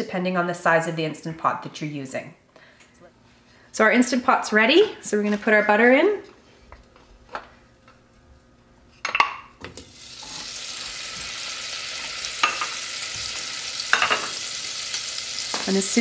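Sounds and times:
butter sizzling in a pot: 9.8s - 16.0s.

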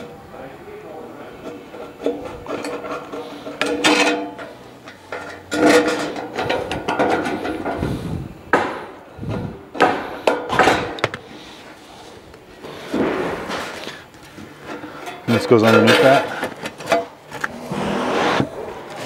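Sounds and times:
sheet metal rattling and clattering: 1.5s - 7.8s.

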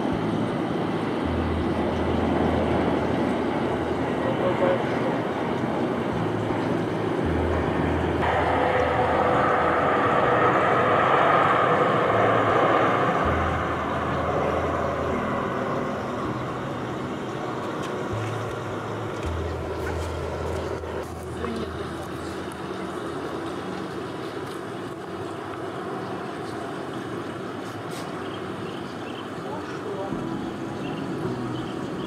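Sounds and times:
jet engine rumble and hiss: 0.0s - 32.0s.

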